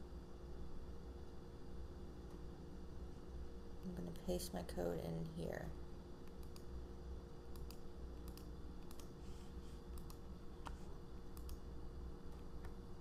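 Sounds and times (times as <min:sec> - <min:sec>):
low steady hum: 0:00.0 - 0:13.0
mouse and keyboard clicks: 0:07.5 - 0:09.2, 0:09.9 - 0:11.6.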